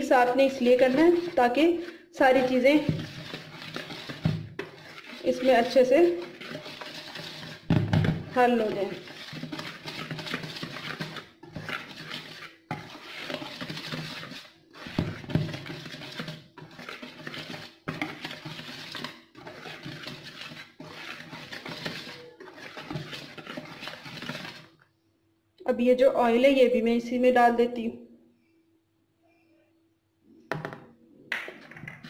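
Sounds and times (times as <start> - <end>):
whisk stirring flour in bowl: 0.0 - 24.8.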